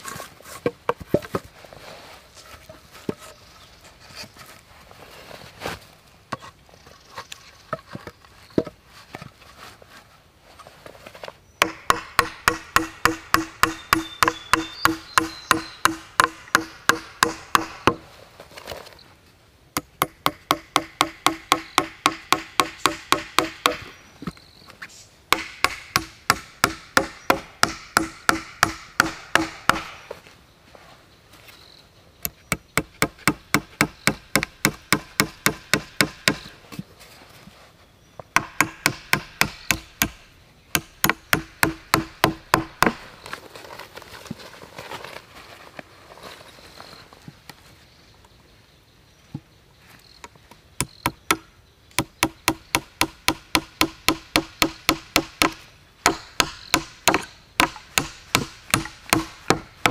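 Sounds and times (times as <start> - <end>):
logs knocking on ground: 0.6 - 1.5
hatchet chopping log: 11.6 - 18.0, 19.8 - 24.0, 25.3 - 30.1, 32.5 - 36.5, 38.4 - 43.0, 50.8 - 59.9.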